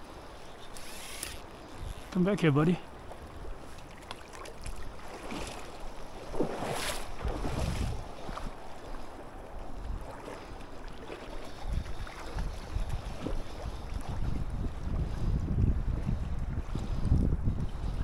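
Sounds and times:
wind buffeting microphone: 0:06.3 - 0:10.6, 0:11.3 - 0:18.0.

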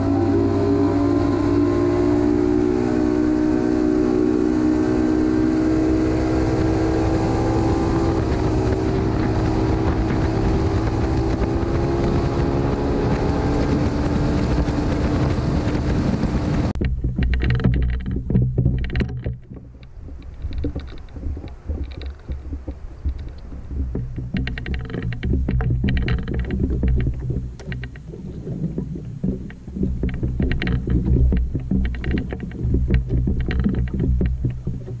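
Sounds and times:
wind rushing: 0:00.0 - 0:18.0
outboard motor running at speed: 0:00.0 - 0:35.0.

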